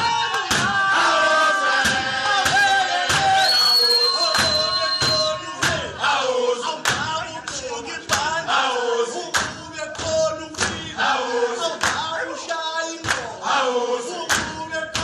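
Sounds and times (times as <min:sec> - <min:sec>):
sharp rhythmic beats: 0:00.0 - 0:03.6, 0:04.2 - 0:13.5, 0:14.1 - 0:15.0
men chanting together: 0:00.0 - 0:15.0.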